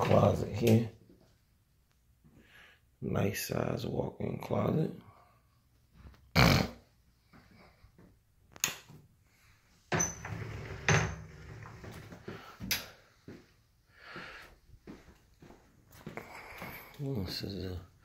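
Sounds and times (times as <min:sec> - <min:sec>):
footsteps: 0:11.7 - 0:17.4.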